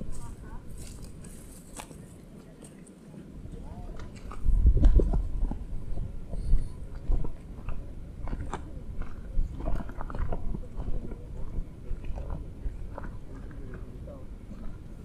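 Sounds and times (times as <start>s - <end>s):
footsteps crunching on rocky ground: 0.0s - 2.9s
low rumble: 3.4s - 15.0s.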